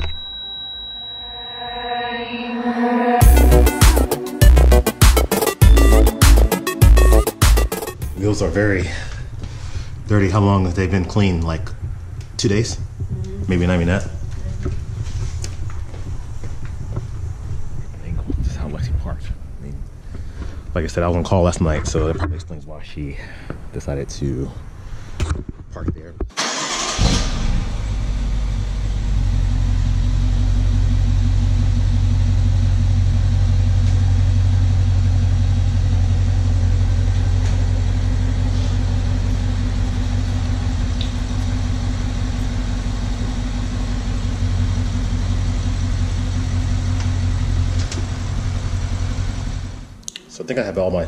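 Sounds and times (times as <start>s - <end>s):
car engine starting and idling: 2.6s - 21.1s, 26.3s - 50.0s.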